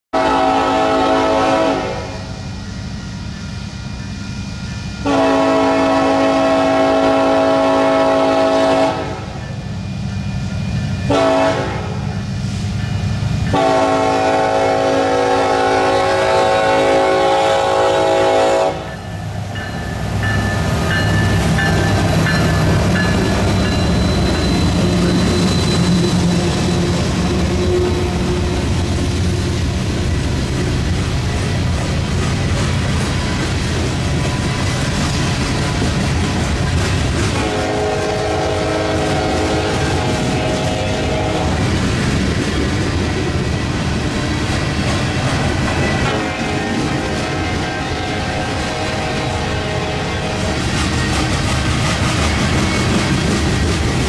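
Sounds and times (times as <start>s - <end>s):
train horn blasts: 0.1s - 2.4s, 5.0s - 9.5s, 11.0s - 12.2s, 13.5s - 19.1s, 37.3s - 41.8s, 45.8s - 50.7s
freight train rumble: 0.1s - 54.0s.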